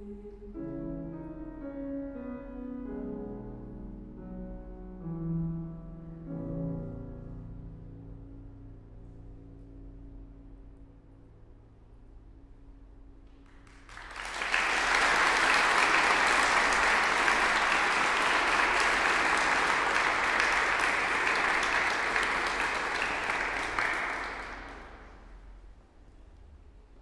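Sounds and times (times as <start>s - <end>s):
audience applauding: 13.4s - 25.4s.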